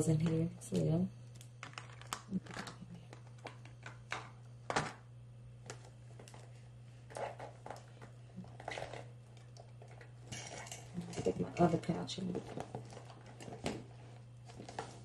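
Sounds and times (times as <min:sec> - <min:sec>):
steady low hum: 0:00.0 - 0:15.0
plastic items clicking and tapping: 0:01.6 - 0:05.0.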